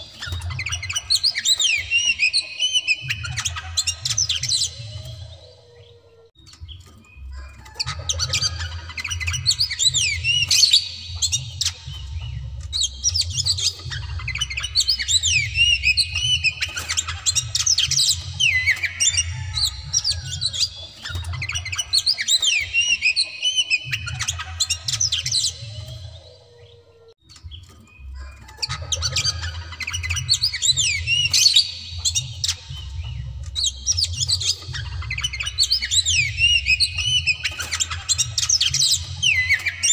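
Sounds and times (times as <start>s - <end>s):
magpie-robin singing: 0.0s - 39.9s.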